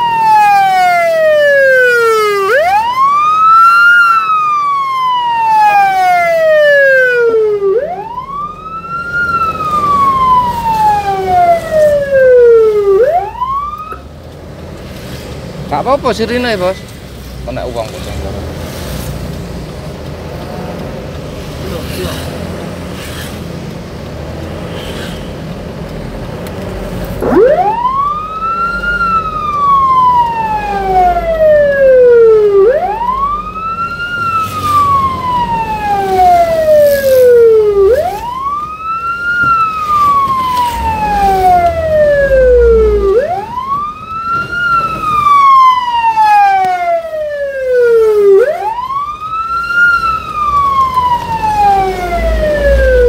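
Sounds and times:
fire truck wail siren: 0.0s - 14.2s, 26.0s - 53.0s.

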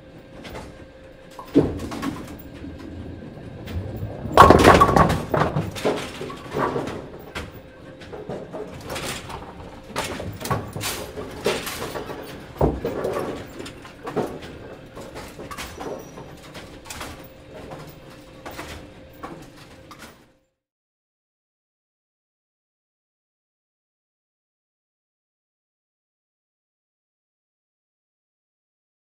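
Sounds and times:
bowling pins clattering: 0.0s - 20.2s
faint machine hum: 0.0s - 20.5s.

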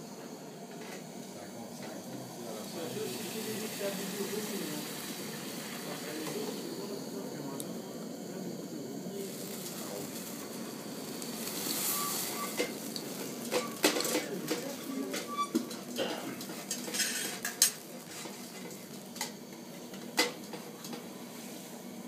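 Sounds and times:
liqueur sizzling and flaming: 0.0s - 22.0s
metal utensils scraping pan: 13.5s - 15.8s, 16.7s - 18.7s.

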